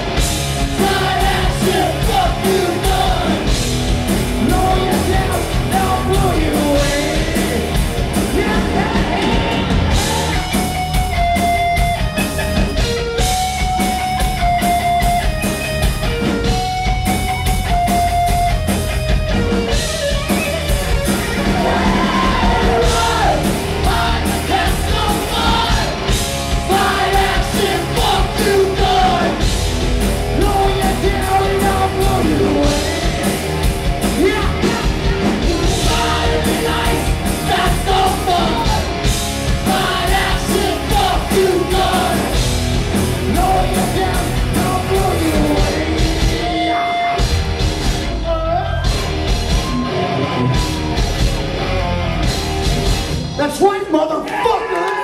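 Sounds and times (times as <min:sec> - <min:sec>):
electric guitars: 0:00.0 - 0:53.4
bass guitar: 0:00.0 - 0:53.6
drum kit beat: 0:00.0 - 0:53.6
person singing: 0:04.4 - 0:10.6, 0:30.4 - 0:33.4, 0:34.2 - 0:38.9, 0:43.3 - 0:47.1.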